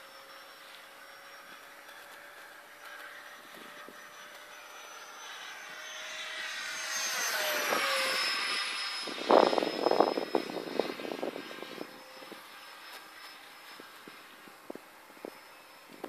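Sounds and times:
model jet fan whining overhead: 0:00.0 - 0:16.0
wind buffeting microphone: 0:07.4 - 0:12.5.

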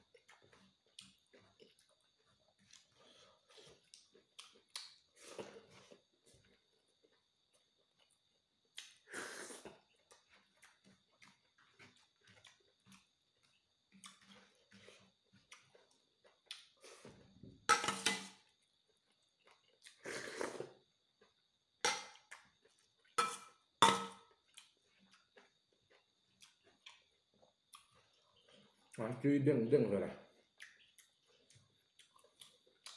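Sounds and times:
wet chewing: 0:00.0 - 0:09.0, 0:09.6 - 0:17.2, 0:24.3 - 0:29.0, 0:30.3 - 0:32.9
slurping and sipping: 0:19.9 - 0:20.8.

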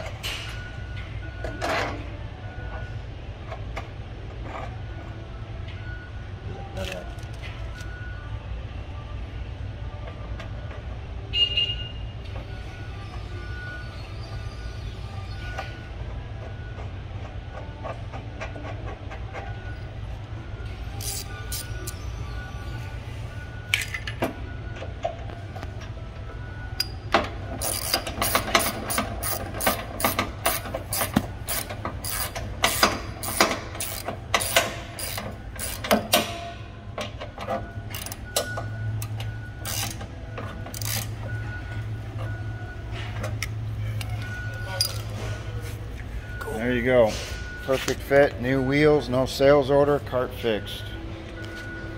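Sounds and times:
ratchet wrench clicking: 0:21.0 - 0:22.0, 0:27.6 - 0:36.4, 0:39.0 - 0:40.0, 0:40.7 - 0:41.2
metal parts clinking: 0:23.7 - 0:24.2, 0:43.4 - 0:45.2.

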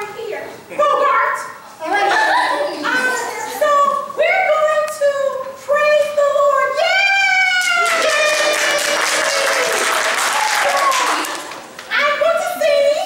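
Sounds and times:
audience applause: 0:07.6 - 0:11.9.

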